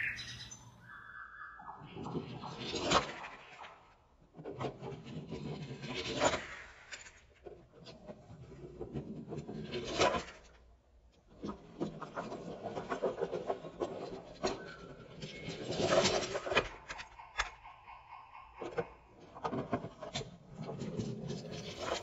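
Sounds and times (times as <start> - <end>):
toy train clack: 15.2 - 22.0
toy train wheels rumbling on plastic: 18.5 - 22.0.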